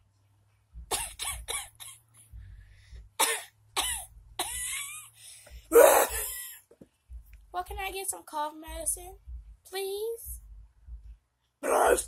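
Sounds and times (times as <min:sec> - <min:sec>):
person coughing: 0:00.9 - 0:02.0, 0:03.2 - 0:04.8, 0:05.7 - 0:06.6.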